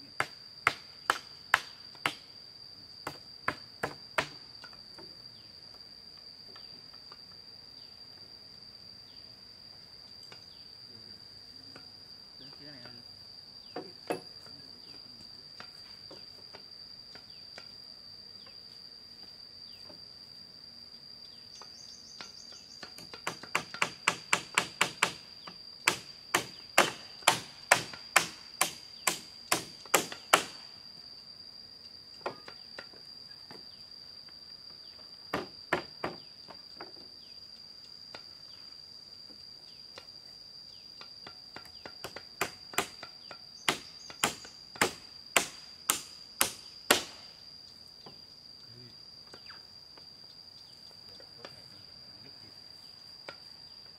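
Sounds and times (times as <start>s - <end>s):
high insect buzz: 0.0s - 53.9s
hand tool striking bamboo: 0.2s - 2.2s, 3.0s - 4.8s, 22.2s - 30.6s, 41.0s - 47.3s.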